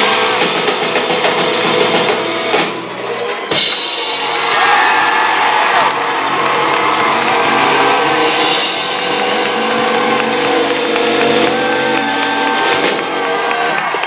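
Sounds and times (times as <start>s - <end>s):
band holding a chord: 1.5s - 13.5s
cymbal crashes: 3.5s - 13.4s
drum kit hits: 3.5s - 14.0s.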